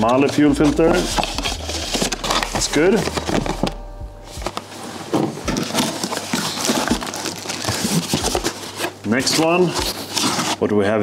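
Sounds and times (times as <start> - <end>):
packing crackling and rustling: 4.4 - 10.7.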